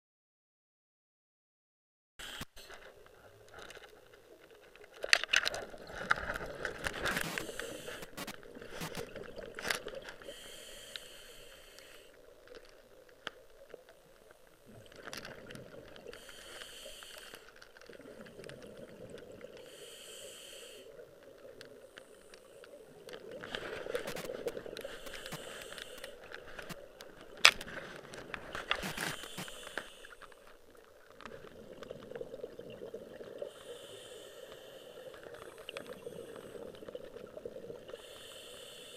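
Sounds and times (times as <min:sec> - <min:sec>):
exhaled bubbles crackling: 0:02.7 - 0:38.5
diver breathing through regulator: 0:06.3 - 0:09.0, 0:09.8 - 0:12.2, 0:16.0 - 0:18.4, 0:19.5 - 0:21.1, 0:23.4 - 0:26.8, 0:28.6 - 0:30.6, 0:33.4 - 0:36.9, 0:37.8 - 0:38.9.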